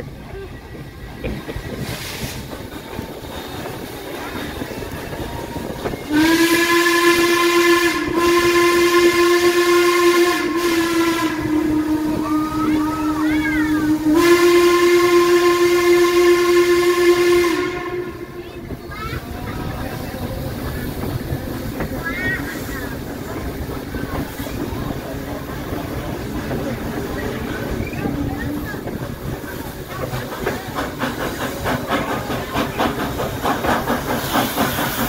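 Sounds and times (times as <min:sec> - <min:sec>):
train running noise: 0:00.0 - 0:35.0
steam locomotive whistle blast: 0:06.0 - 0:18.4.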